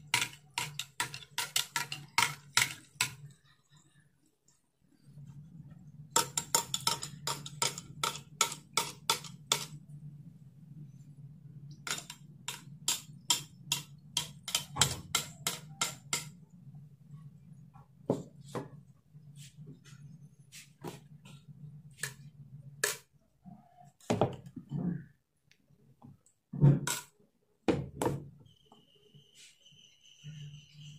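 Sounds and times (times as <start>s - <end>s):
steady low hum: 1.6s - 15.4s.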